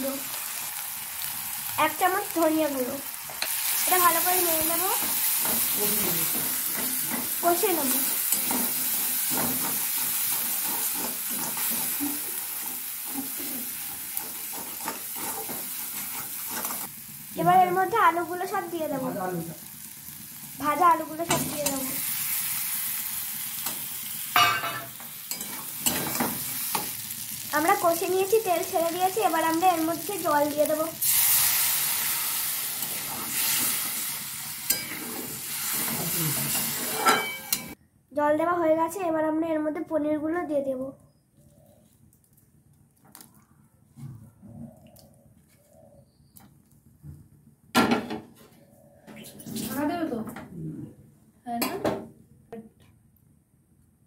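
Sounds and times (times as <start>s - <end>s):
sauce sizzling in hot oil: 0.0s - 37.8s
spatula scraping a pan: 8.0s - 16.9s, 32.8s - 37.8s.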